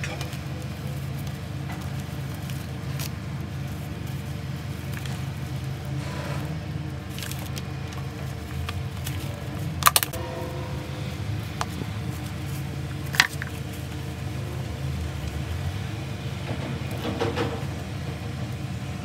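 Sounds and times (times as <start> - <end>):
steady low hum: 0.0 - 19.0
plastic bottle crinkly clicks: 9.8 - 10.2.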